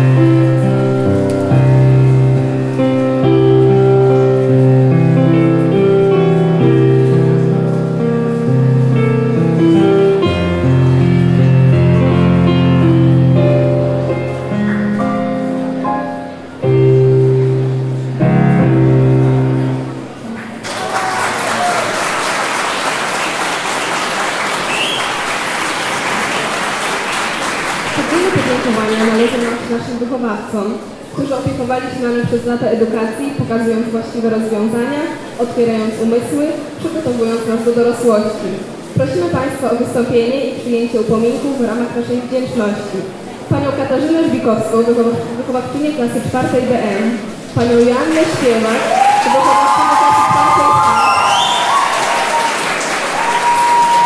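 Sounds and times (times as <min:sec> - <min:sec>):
digital piano chords: 0:00.0 - 0:20.6
crowd applauding: 0:20.0 - 0:30.0, 0:47.6 - 0:54.0.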